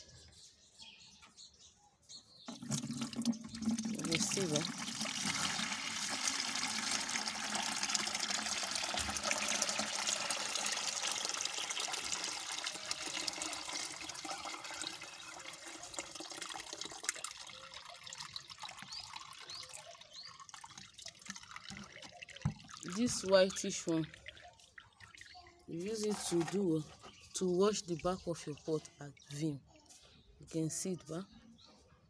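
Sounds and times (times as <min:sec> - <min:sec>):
liquid pouring and splashing: 0:02.5 - 0:27.2.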